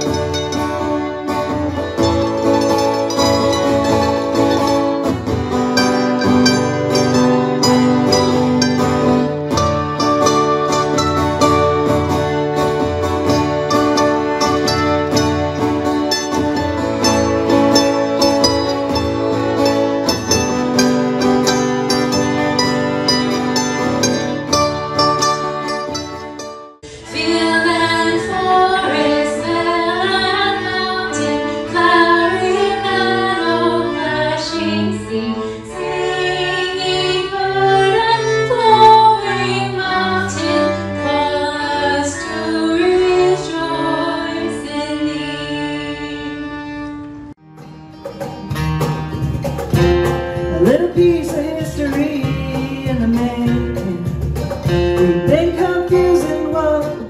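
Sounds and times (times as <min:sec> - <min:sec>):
acoustic guitars strumming: 0:00.0 - 0:44.6, 0:45.3 - 0:57.0
fiddles and cello playing: 0:00.0 - 0:47.4
cajon beat: 0:01.3 - 0:26.7, 0:47.4 - 0:57.0
woman singing: 0:27.0 - 0:46.7, 0:50.5 - 0:57.0.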